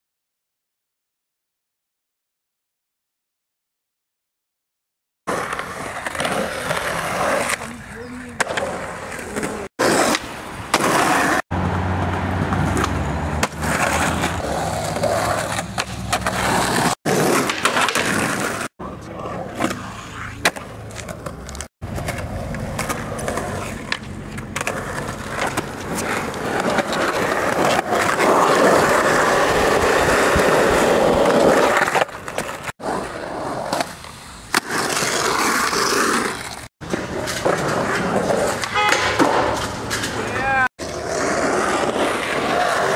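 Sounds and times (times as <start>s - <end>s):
skateboard wheels rolling on concrete: 5.3s - 42.9s
skateboard pops and landings: 8.4s - 11.4s, 12.0s - 18.7s, 19.5s - 40.2s.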